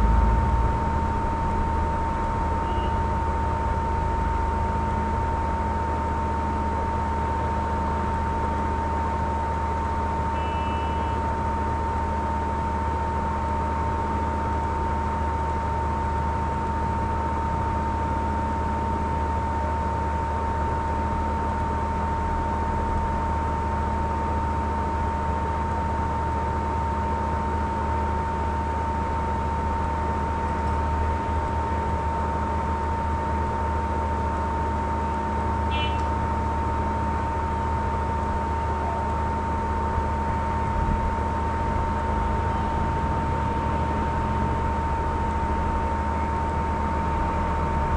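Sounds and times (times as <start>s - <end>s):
high-pitched whine: 0.0s - 5.4s
faint beep tone: 2.6s - 3.0s, 10.3s - 11.2s.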